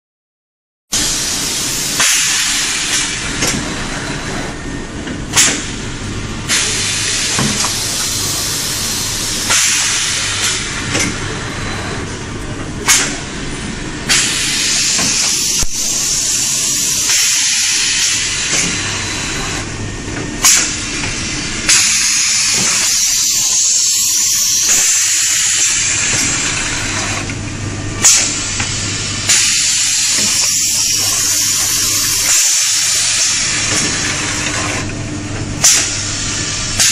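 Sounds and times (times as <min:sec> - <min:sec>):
machine steady hiss: 0:01.0 - 0:03.3, 0:05.6 - 0:10.9, 0:14.1 - 0:19.7, 0:20.4 - 0:27.4, 0:28.0 - 0:34.9.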